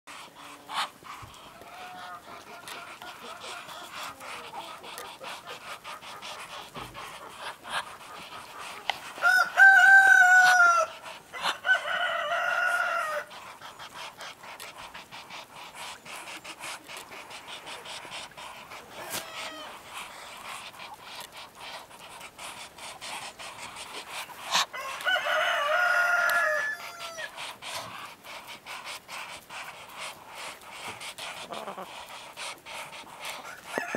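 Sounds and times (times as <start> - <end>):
rooster crowing: 9.2 - 13.3, 24.7 - 27.3, 33.4 - 33.9.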